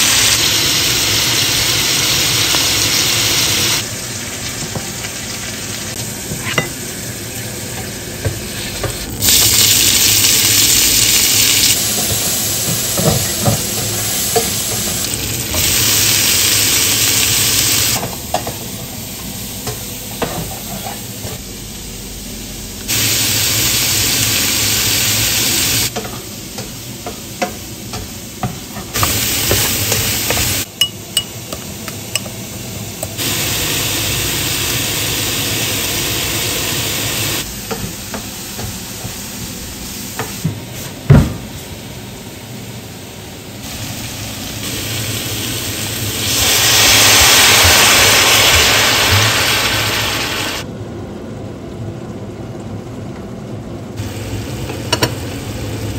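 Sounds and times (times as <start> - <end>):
vegetables sizzling in a pot: 0.0 - 40.8, 43.4 - 50.7, 54.0 - 55.9.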